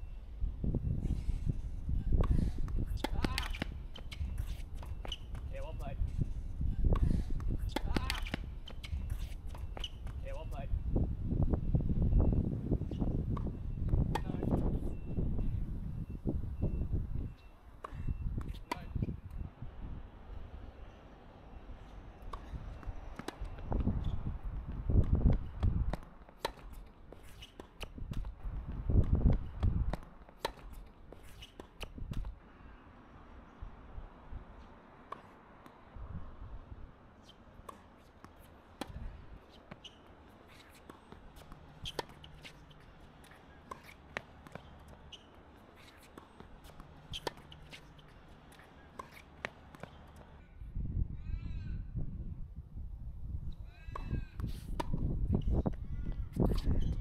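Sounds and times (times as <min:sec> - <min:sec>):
wind buffeting microphone: 0:00.3 - 0:03.0, 0:06.0 - 0:07.8, 0:10.7 - 0:17.4, 0:22.4 - 0:26.0, 0:28.0 - 0:30.0, 0:36.0 - 0:37.0, 0:50.5 - 0:57.0
tennis ball bounces and hits: 0:02.2 - 0:06.2, 0:06.8 - 0:10.6, 0:13.0 - 0:14.9, 0:17.4 - 0:19.2, 0:21.8 - 0:32.4, 0:34.6 - 0:35.9, 0:37.1 - 0:50.4, 0:53.9 - 0:57.0.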